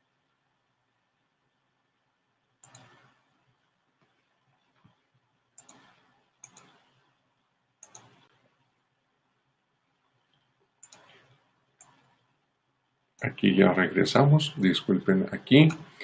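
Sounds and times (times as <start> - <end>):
faint steady hum: 0.0 - 16.0
faint computer mouse clicks: 2.6 - 3.1, 5.6 - 7.0, 7.8 - 8.3, 10.3 - 12.2.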